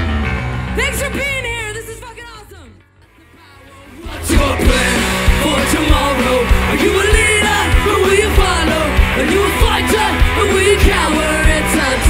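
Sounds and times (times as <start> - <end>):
live ska punk band: 3.1 - 12.0
steady drumbeat: 4.0 - 12.0.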